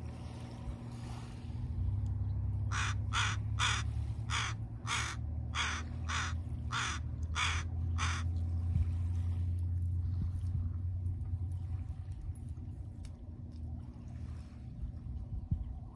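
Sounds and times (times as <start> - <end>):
steady low rumble: 0.0 - 15.9
crow cawing: 2.7 - 8.3.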